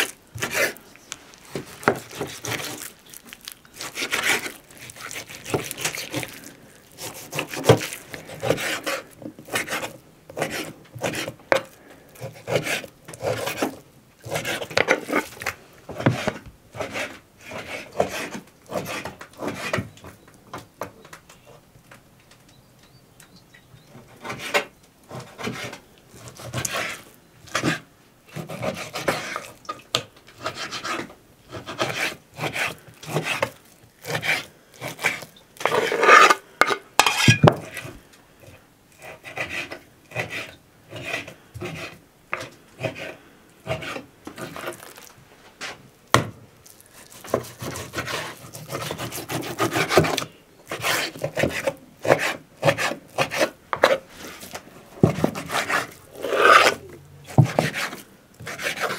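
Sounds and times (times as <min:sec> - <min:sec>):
knife slicing meat on wooden board: 0:01.6 - 0:02.9, 0:03.8 - 0:19.8, 0:30.4 - 0:36.4, 0:47.0 - 0:54.0, 0:55.0 - 0:58.9.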